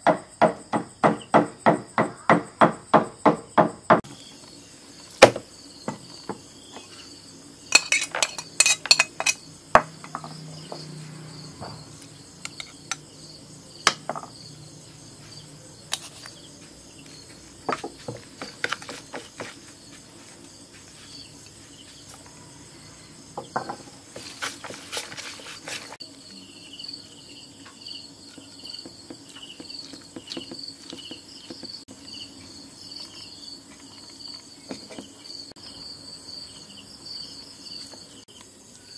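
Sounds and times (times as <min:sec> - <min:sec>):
crickets chirping: 0:00.0 - 0:38.9
metal spoon scraping plastic tub: 0:12.5 - 0:13.0.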